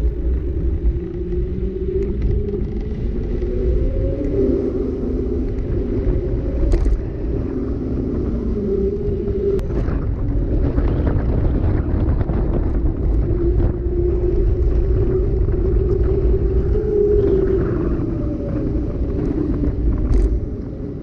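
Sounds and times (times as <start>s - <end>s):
wind on microphone: 0.0s - 21.0s
bike clicks and rattles: 20.0s - 20.4s.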